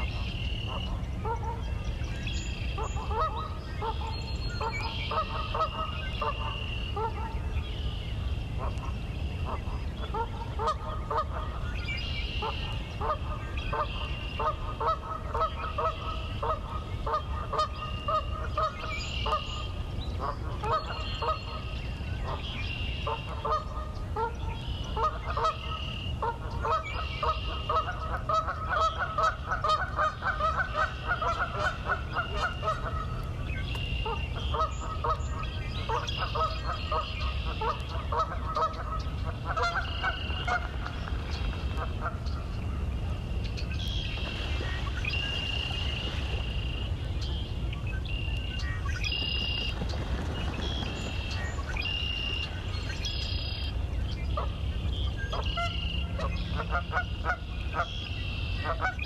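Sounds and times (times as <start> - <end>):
geese honking: 9.5 - 11.6, 12.4 - 19.6, 23.0 - 33.2, 34.0 - 41.0, 55.3 - 59.0.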